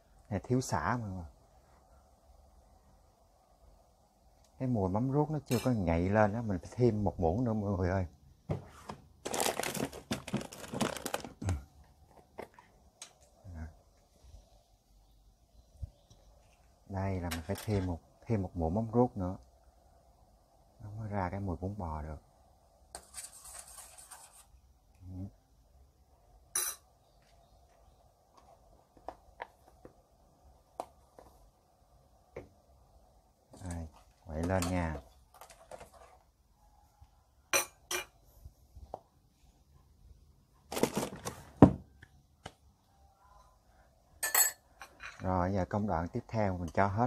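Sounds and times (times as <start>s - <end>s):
plastic packaging crinkling: 9.2s - 11.6s, 40.7s - 41.4s.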